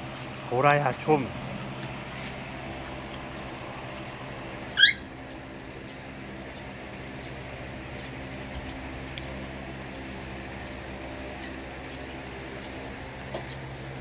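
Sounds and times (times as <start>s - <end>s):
low mechanical hum: 0.0s - 14.0s
puppy squeaking: 4.7s - 5.1s.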